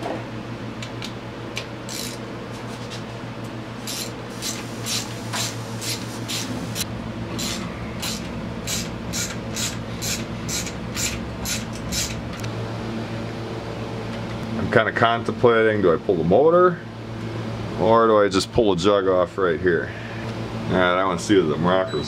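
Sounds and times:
socket ratchet strokes: 0:01.9 - 0:02.2, 0:03.9 - 0:06.4, 0:07.4 - 0:12.2.

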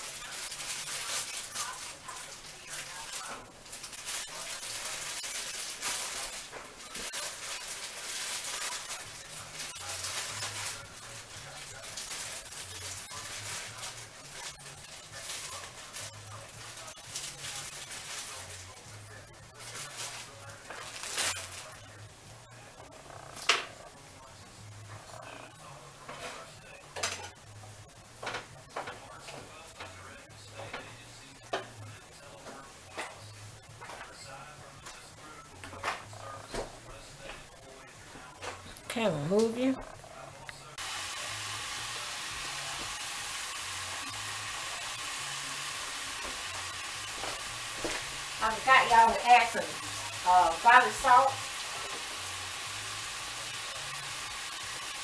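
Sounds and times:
plastic wrapper rustling: 0:00.0 - 0:22.0
meat sizzling in a pan: 0:00.0 - 0:22.6, 0:40.2 - 0:55.0
meat sizzling in a skillet: 0:40.8 - 0:55.0.

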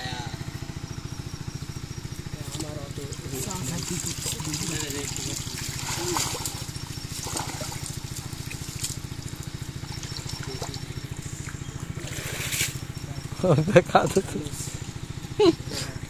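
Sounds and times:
steady low drone: 0:00.0 - 0:16.0
muddy water sloshing: 0:02.3 - 0:16.0
small water splashes: 0:02.5 - 0:13.0.

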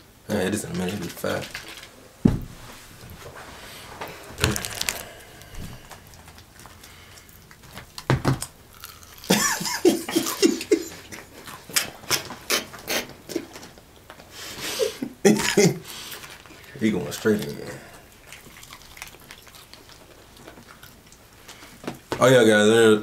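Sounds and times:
crunchy chewing: 0:04.0 - 0:14.4, 0:15.4 - 0:22.1
burst of laughter: 0:09.3 - 0:11.3.

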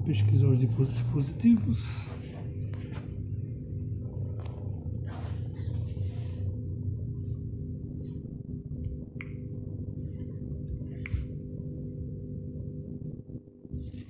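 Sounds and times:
low electrical hum: 0:00.0 - 0:14.0.

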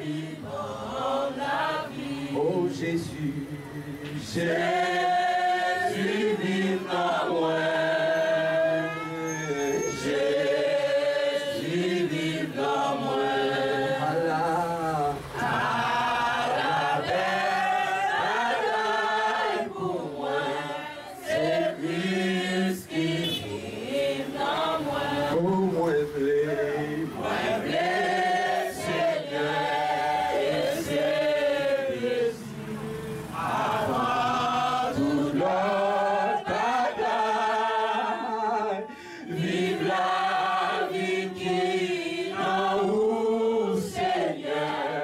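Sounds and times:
voices singing a slow hymn: 0:00.0 - 0:45.0.

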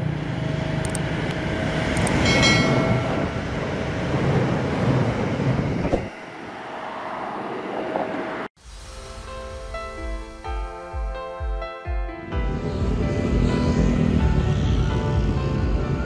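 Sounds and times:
train rail rumble: 0:12.3 - 0:16.0.

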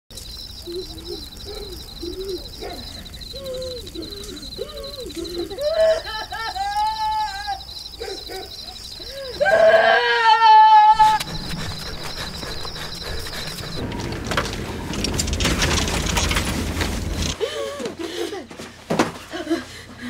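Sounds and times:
high insect trill: 0:00.1 - 0:17.4
woman moaning and wailing: 0:03.3 - 0:07.6
woman screaming: 0:03.3 - 0:07.7, 0:09.2 - 0:11.2.

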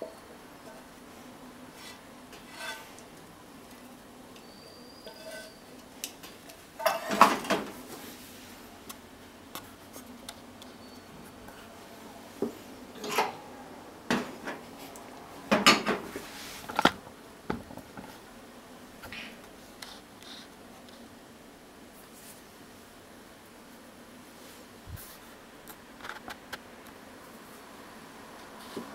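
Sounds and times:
chopsticks scraping a pan: 0:01.7 - 0:03.1, 0:04.4 - 0:07.5.

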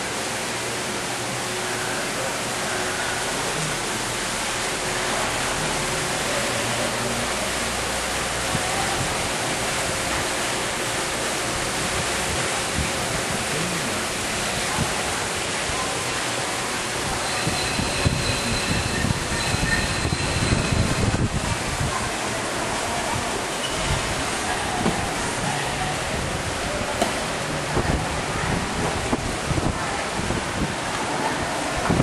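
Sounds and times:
fountain water cascading: 0:00.0 - 0:32.0.

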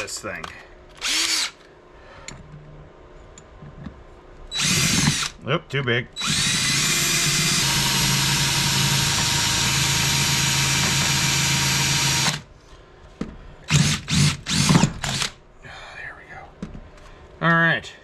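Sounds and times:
cordless drill running: 0:01.0 - 0:01.6, 0:04.5 - 0:05.3, 0:06.2 - 0:12.5, 0:13.7 - 0:15.4.

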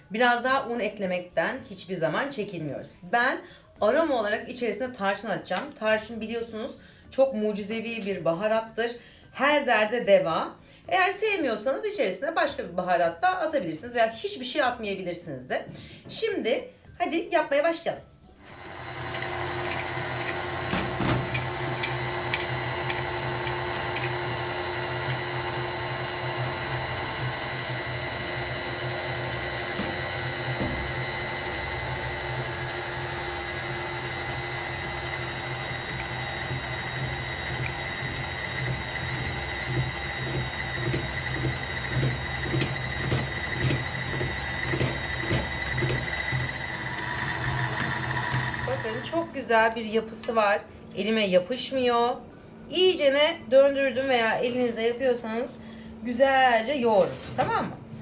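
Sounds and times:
stand mixer motor whine: 0:18.4 - 0:49.4
dough thudding in mixer: 0:18.5 - 0:49.2.

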